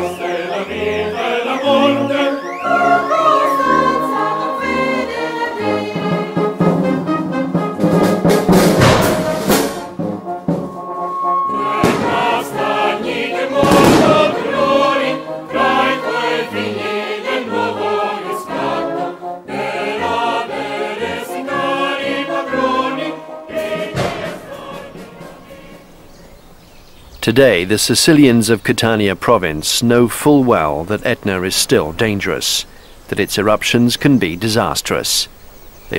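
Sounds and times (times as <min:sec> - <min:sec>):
choir singing sacred music: 0:00.0 - 0:07.4, 0:08.8 - 0:26.5
instrumental accompaniment: 0:00.0 - 0:26.1.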